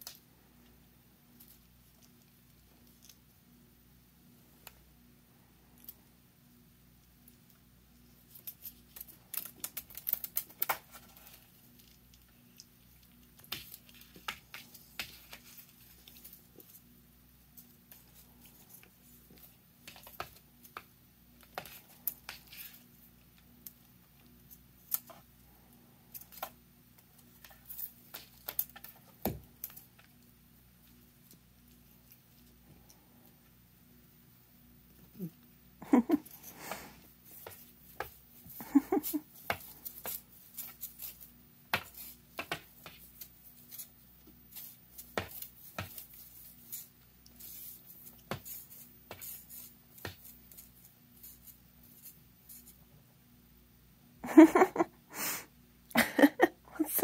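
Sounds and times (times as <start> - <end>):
toy tapping and rustling: 36.2 - 52.8.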